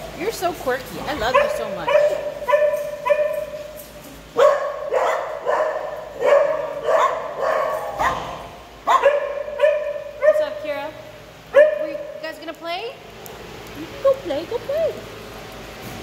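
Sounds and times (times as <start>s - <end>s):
dog barking: 1.2s - 3.8s, 4.4s - 10.6s, 11.5s - 12.2s.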